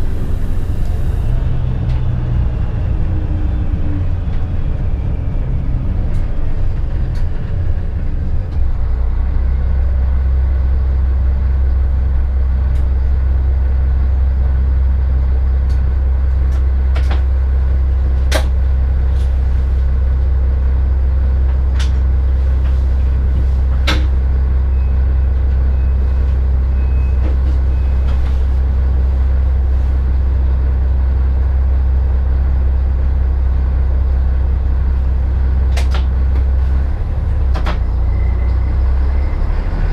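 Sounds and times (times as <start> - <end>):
railcar drawing to a halt: 0.0 - 10.9, 22.4 - 30.6, 36.6 - 39.9
diesel engine idling: 0.0 - 39.9.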